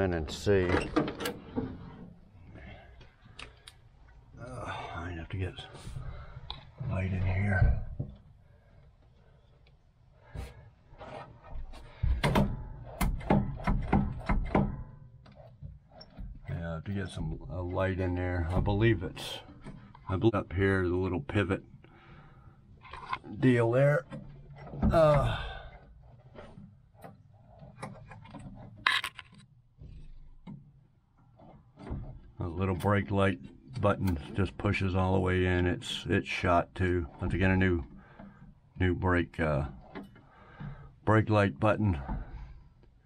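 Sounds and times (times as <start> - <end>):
light clicks and scrapes: 22.0 - 24.8.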